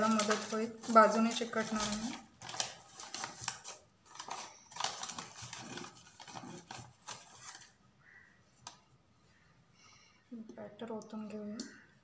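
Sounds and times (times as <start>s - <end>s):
baking parchment crinkling: 0.0s - 7.8s.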